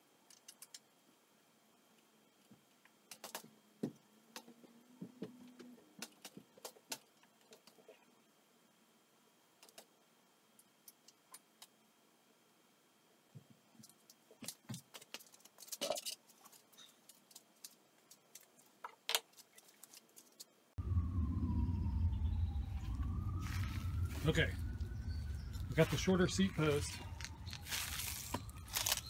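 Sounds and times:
steady low rumble: 20.8 - 29.0.

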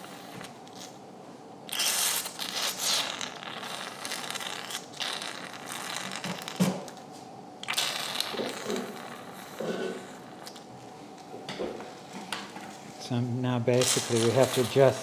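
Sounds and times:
surgical suction slurping: 1.7 - 6.6, 7.6 - 10.7.

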